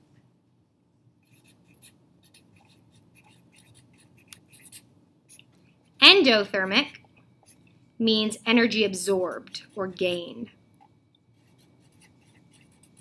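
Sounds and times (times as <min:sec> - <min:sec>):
marker writing on paper: 0:01.2 - 0:05.5, 0:11.4 - 0:13.0.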